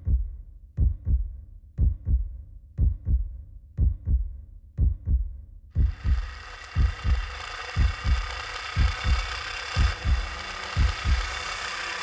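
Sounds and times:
heartbeat thumping: 0.0 - 11.5.

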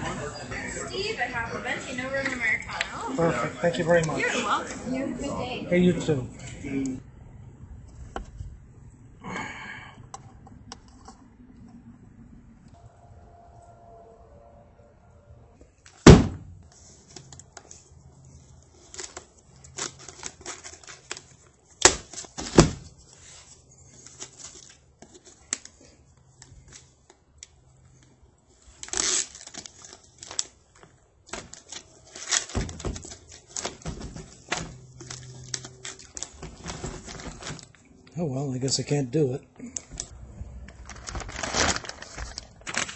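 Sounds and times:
paper bags rustling and crinkling: 16.6 - 27.0, 28.6 - 37.8, 40.0 - 42.9.

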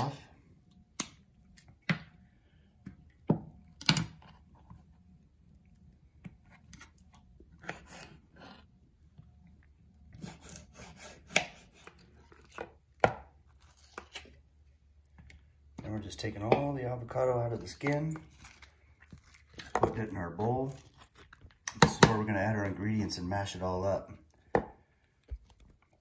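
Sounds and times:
knife scraping strokes: 7.6 - 8.7, 10.2 - 12.7.

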